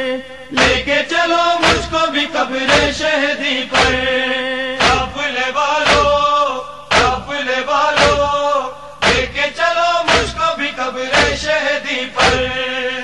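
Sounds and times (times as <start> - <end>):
voices chanting a refrain: 0.0 - 13.0
hands beating on chests: 0.6 - 0.9, 1.6 - 2.0, 3.8 - 4.0, 4.8 - 5.2, 5.8 - 6.2, 6.9 - 7.3, 8.0 - 8.3, 9.0 - 9.4, 10.1 - 10.4.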